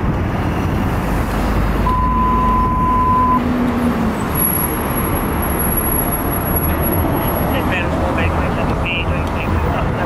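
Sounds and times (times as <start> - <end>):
road traffic noise: 0.0 - 10.0
steady beep: 1.8 - 3.4.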